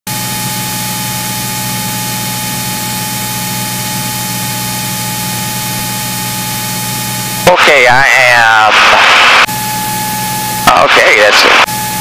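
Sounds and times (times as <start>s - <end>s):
aircraft engine and propeller drone: 0.1s - 12.0s
thin high tone: 9.5s - 12.0s.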